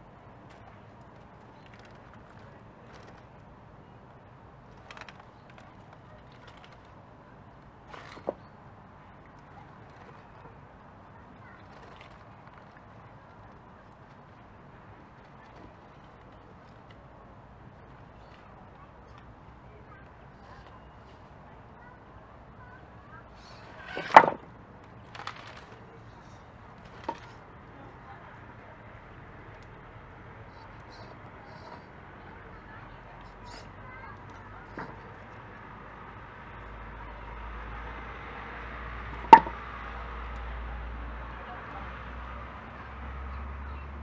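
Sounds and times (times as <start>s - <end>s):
toy car wheels clattering on rock: 4.7s - 7.0s, 7.9s - 8.6s, 11.4s - 13.5s, 23.4s - 27.5s, 33.2s - 35.5s, 39.2s - 39.6s
sharp clack: 23.6s - 24.5s, 39.2s - 39.6s
steel wheels knocking on stone: 39.2s - 39.6s.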